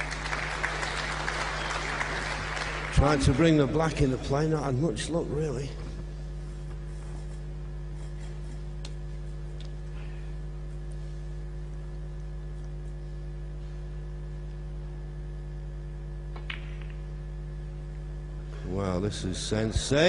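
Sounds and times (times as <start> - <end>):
electrical hum: 0.0 - 20.0
snooker balls clicking: 16.3 - 17.1.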